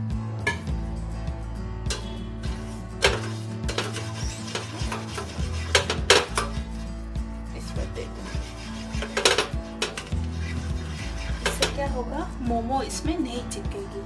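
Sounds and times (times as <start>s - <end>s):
hand scraping metal plate: 1.9s - 12.1s.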